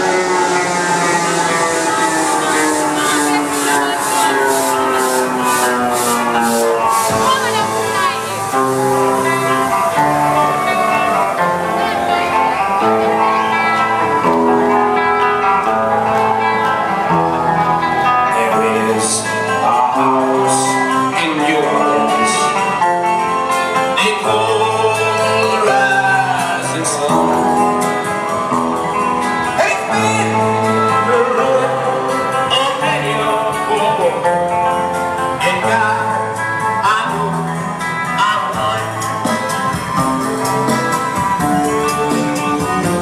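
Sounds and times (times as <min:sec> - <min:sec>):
loud dance music: 0:00.0 - 0:18.9
bass line of held notes: 0:00.0 - 0:23.4
person singing: 0:00.0 - 0:28.5, 0:29.5 - 0:43.0
guitar: 0:00.0 - 0:43.0.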